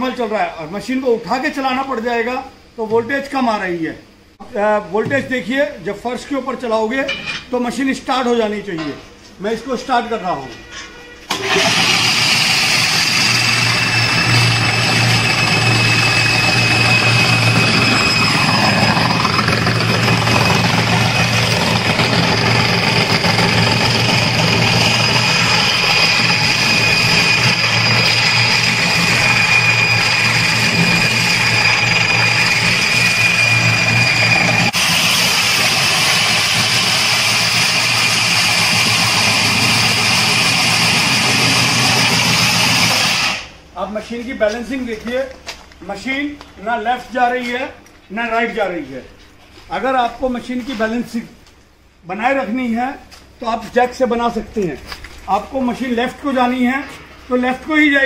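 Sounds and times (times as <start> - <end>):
floor grinding machine: 11.3 - 43.5.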